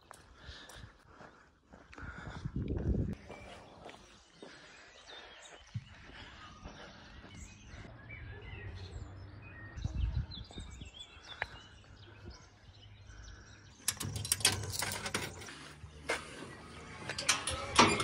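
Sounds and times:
faint birds chirping: 0:00.0 - 0:18.0
coins clattering through machine: 0:13.8 - 0:15.4.

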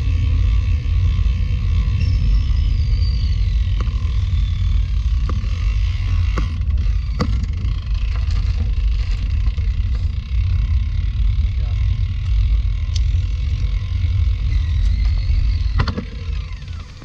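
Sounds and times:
wind buffeting microphone: 0:00.0 - 0:17.0
bike knocks: 0:03.5 - 0:10.3, 0:14.6 - 0:17.0.

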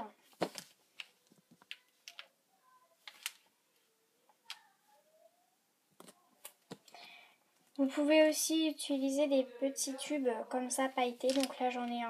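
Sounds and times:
faint clicks and taps: 0:00.4 - 0:02.4, 0:06.0 - 0:07.0.

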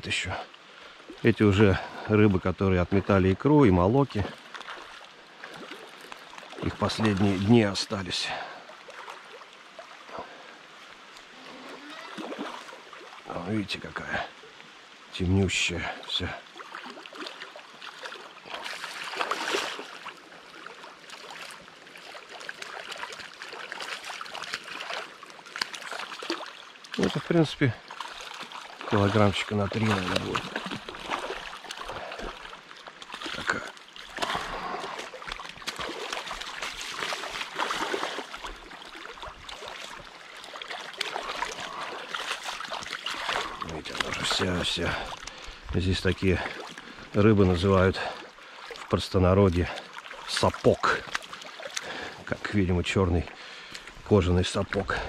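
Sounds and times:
river running: 0:00.0 - 0:55.0
fish splashing in water: 0:11.6 - 0:13.2, 0:16.5 - 0:45.6.

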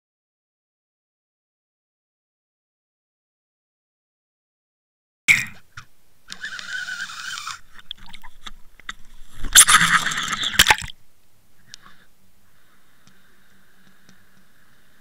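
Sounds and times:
water rushing against camera: 0:07.1 - 0:11.0
splashing and knocks: 0:09.5 - 0:11.0.

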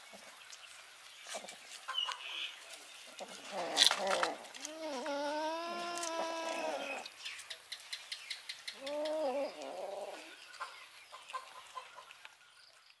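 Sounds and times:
cats chewing and eating: 0:00.0 - 0:13.0
cat meowing: 0:04.7 - 0:07.0.

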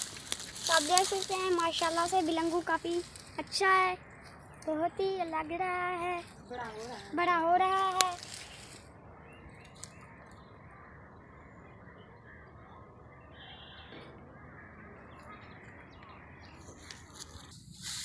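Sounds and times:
rustling: 0:00.0 - 0:03.4, 0:16.7 - 0:18.0
distant bird chirp: 0:00.0 - 0:17.5.

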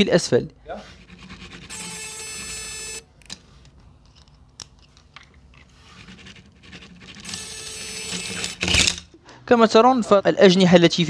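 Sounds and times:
steady buzzing hum: 0:00.4 - 0:03.5, 0:06.0 - 0:10.0.

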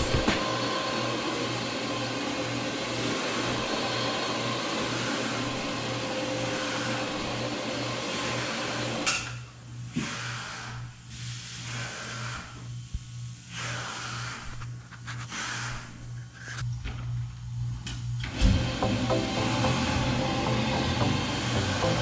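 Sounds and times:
carpet cleaning machine humming: 0:00.0 - 0:09.1, 0:18.2 - 0:22.0.

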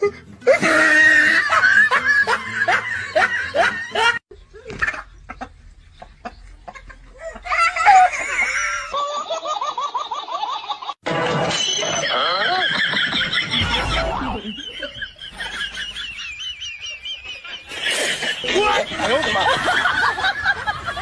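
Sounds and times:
people laughing: 0:00.4 - 0:21.0
nestling birds cheeping: 0:04.3 - 0:07.2, 0:13.4 - 0:19.0.

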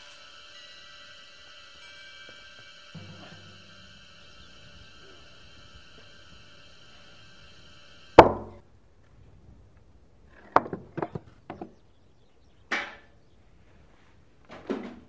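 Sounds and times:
heavy knock on wooden planks: 0:08.2 - 0:08.6
light wooden knocks and clatters: 0:10.4 - 0:11.8.

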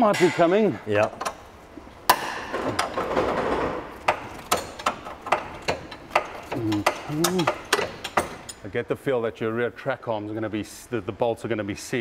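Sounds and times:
spanner clacking on metal: 0:04.0 - 0:08.6.

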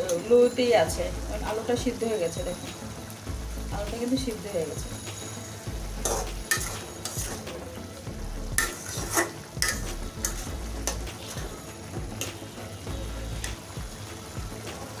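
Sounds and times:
low sizzle: 0:00.0 - 0:15.0
spatula scraping metal pan: 0:06.0 - 0:07.5, 0:08.6 - 0:11.5.

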